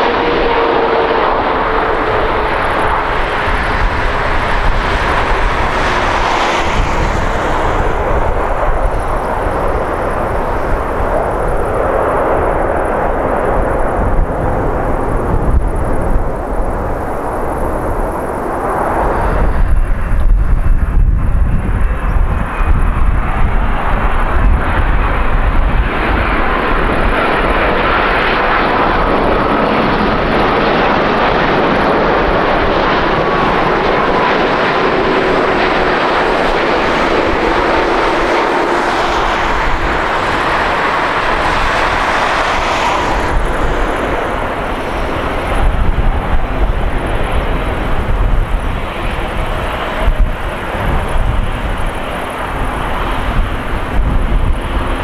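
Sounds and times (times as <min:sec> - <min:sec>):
jet airliner engines rushing: 0:00.0 - 0:55.0
wind buffeting microphone: 0:00.0 - 0:55.0.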